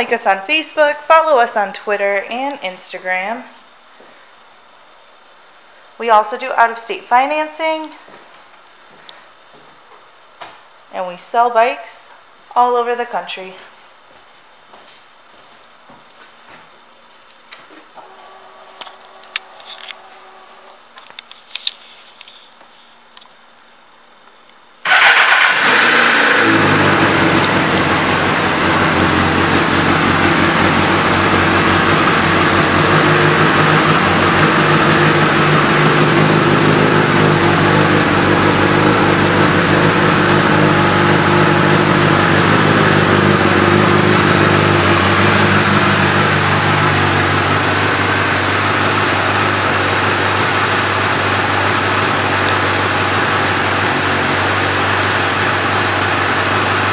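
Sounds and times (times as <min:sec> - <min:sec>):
motorcycle engine starting and idling: 0:18.0 - 0:20.9, 0:24.8 - 0:56.9.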